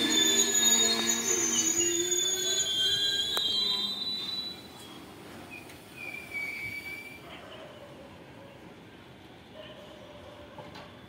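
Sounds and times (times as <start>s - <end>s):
wheels squealing: 0.0s - 7.2s
train coaches rolling past: 0.0s - 11.0s.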